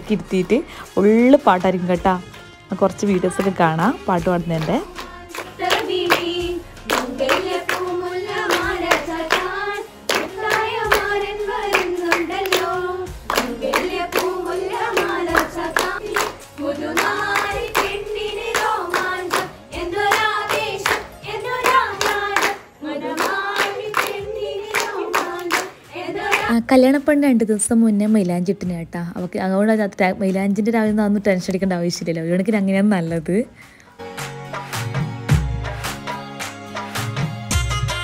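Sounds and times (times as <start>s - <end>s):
rhythmic hand clapping: 3.2s - 26.6s, 34.1s - 38.0s
group singing: 4.5s - 26.6s.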